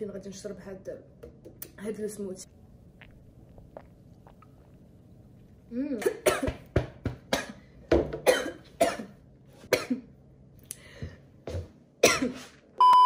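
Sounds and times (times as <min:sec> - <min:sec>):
woman coughing: 0:05.8 - 0:06.6, 0:08.2 - 0:10.1, 0:12.0 - 0:12.5.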